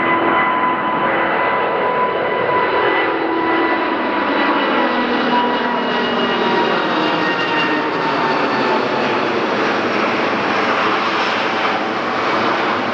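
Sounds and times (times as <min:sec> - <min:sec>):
jet airliner passing overhead: 0:00.0 - 0:12.9.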